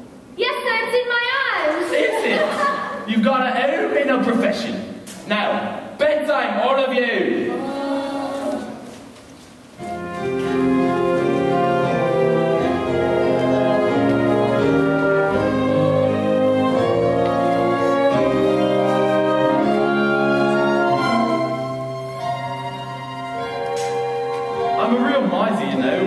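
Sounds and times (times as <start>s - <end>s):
orchestra playing held notes: 9.8s - 26.0s.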